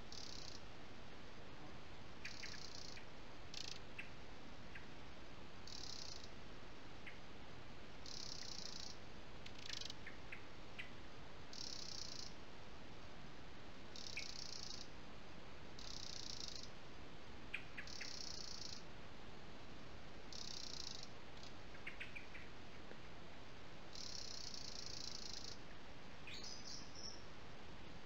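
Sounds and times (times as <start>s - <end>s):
steady hiss: 0.0s - 28.0s
insect buzzing trill: 0.1s - 0.6s, 2.3s - 3.8s, 5.7s - 6.3s, 8.0s - 9.0s, 11.5s - 12.3s, 14.0s - 14.9s, 15.8s - 16.7s, 17.9s - 18.8s, 20.3s - 21.5s, 23.9s - 25.6s
bird call: 2.2s - 4.9s, 17.6s - 18.8s.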